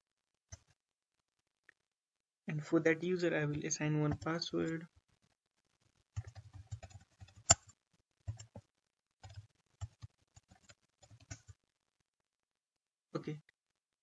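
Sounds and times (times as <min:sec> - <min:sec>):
keyboard typing: 0:03.5 - 0:04.5, 0:06.1 - 0:11.6.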